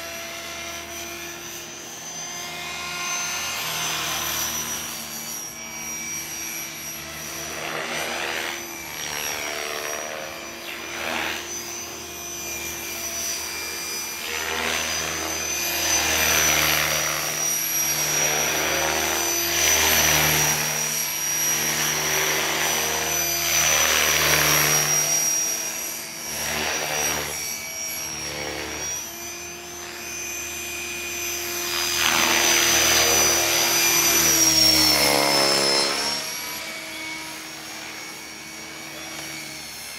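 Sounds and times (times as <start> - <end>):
rc helicopter motor whine: 0.0 - 39.9.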